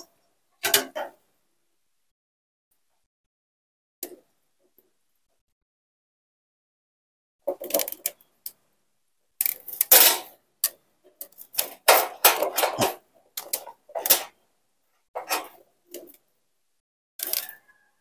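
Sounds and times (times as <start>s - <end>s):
pump parts clicking and knocking: 7.4s - 8.6s, 9.4s - 14.4s.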